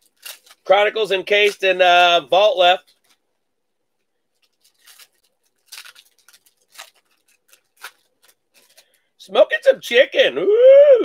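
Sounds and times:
foil wrappers crinkling: 0:00.0 - 0:09.2.

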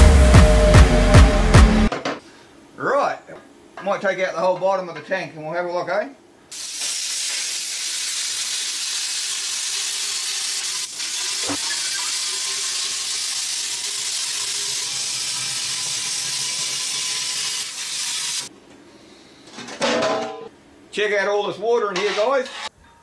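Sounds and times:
plasma cutter hissing: 0:06.5 - 0:18.5.

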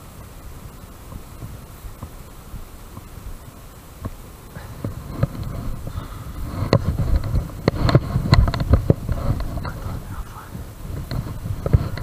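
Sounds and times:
fabric rubbing on microphone: 0:04.5 - 0:12.0
camera knocks and thumps: 0:04.8 - 0:09.9, 0:10.9 - 0:12.0.

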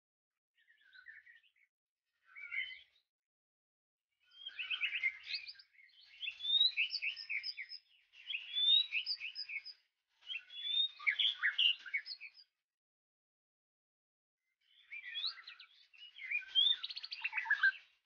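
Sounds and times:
bird singing whistles and trills: 0:00.6 - 0:03.0, 0:04.2 - 0:12.5, 0:14.6 - 0:18.0.

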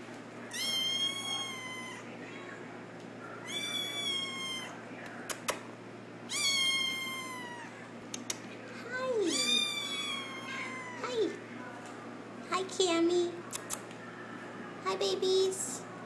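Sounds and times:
kitten meowing: 0:00.5 - 0:02.0, 0:03.4 - 0:04.7, 0:06.3 - 0:07.8, 0:09.2 - 0:11.4.

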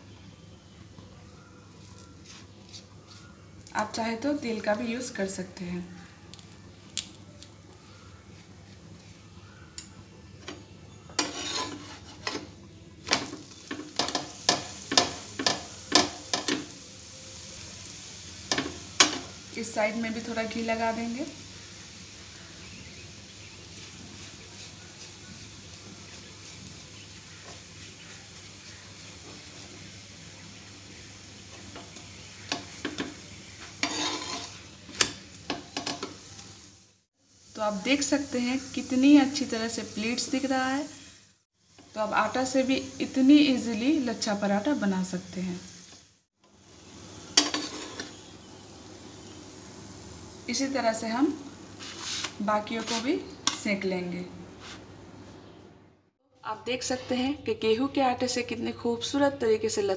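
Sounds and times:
flatbread sizzling on a pan: 0:01.4 - 0:53.9
spatula scraping and patting: 0:02.2 - 0:03.3, 0:11.2 - 0:12.5, 0:31.8 - 0:36.1, 0:47.4 - 0:48.2, 0:51.8 - 0:53.6.

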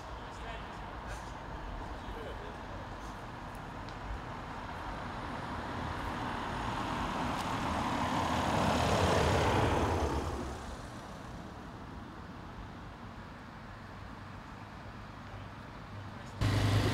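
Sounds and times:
motorcycles and car driving past: 0:05.8 - 0:11.4, 0:16.4 - 0:16.9.

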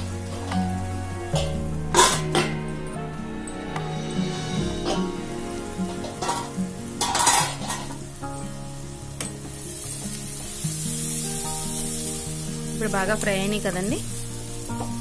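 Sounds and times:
onions sizzling in hot oil: 0:00.0 - 0:02.6, 0:04.1 - 0:15.0
wooden spatula scraping a pan: 0:04.2 - 0:08.1.

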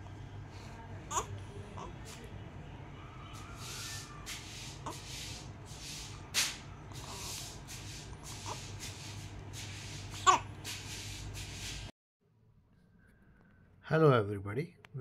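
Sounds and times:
baby fussing and whimpering: 0:01.1 - 0:02.2, 0:03.4 - 0:05.4, 0:06.9 - 0:09.2, 0:09.8 - 0:10.7.

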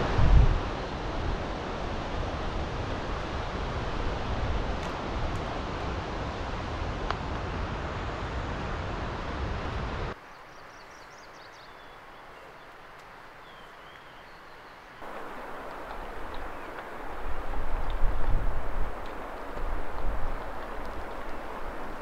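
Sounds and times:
wind buffeting microphone: 0:00.0 - 0:10.2, 0:15.0 - 0:22.0
faint bird chirps: 0:10.2 - 0:12.7.

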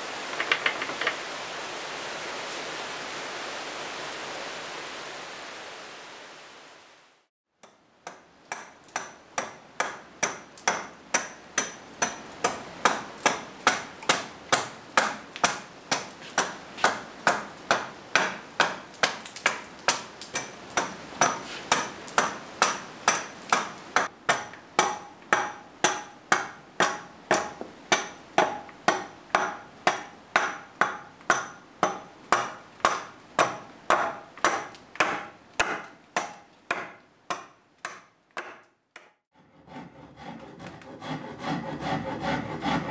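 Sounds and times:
hatchet chopping wood: 0:07.6 - 0:39.3.

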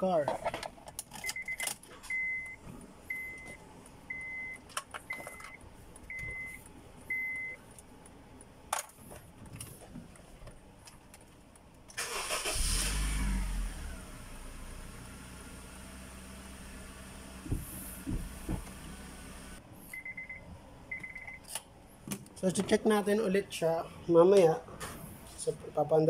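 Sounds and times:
car engine starting and idling: 0:11.9 - 0:19.6.

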